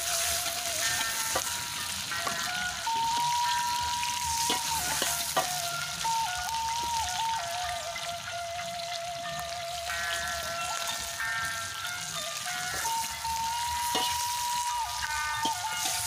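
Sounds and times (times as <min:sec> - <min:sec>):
melody of long held notes: 0:00.0 - 0:16.0
vegetables sizzling in a wok: 0:00.0 - 0:16.0.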